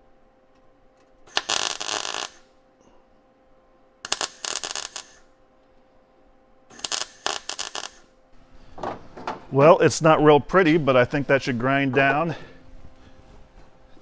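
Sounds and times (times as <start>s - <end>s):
welding arc crackling: 1.2s - 2.5s, 4.0s - 5.3s, 6.7s - 8.2s.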